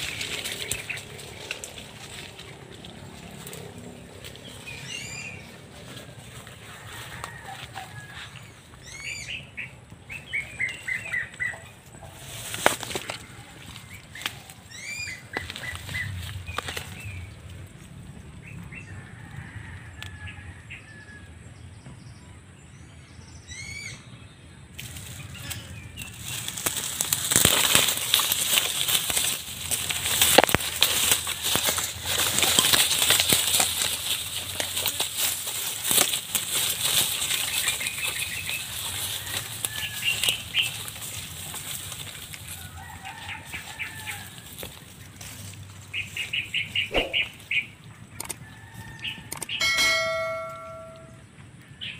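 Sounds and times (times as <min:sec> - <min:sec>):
birds chirping: 0:00.0 - 0:19.3, 0:21.6 - 0:51.9
rustling in dry leaves: 0:00.0 - 0:20.4, 0:24.8 - 0:51.2
short bird calls: 0:46.7 - 0:47.7.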